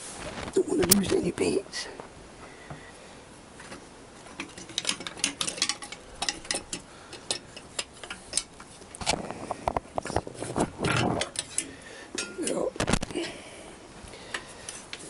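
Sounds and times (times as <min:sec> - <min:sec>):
light metallic clicks and clinks: 0:04.4 - 0:08.6.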